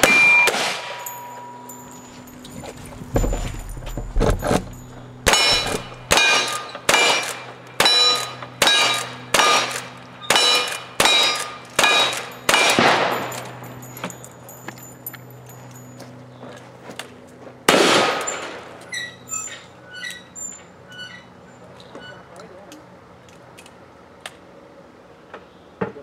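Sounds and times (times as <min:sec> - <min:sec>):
rifle shots: 0:00.0 - 0:01.1, 0:05.2 - 0:13.5, 0:17.7 - 0:18.6
steel target ringing: 0:00.0 - 0:02.4, 0:03.2 - 0:14.5.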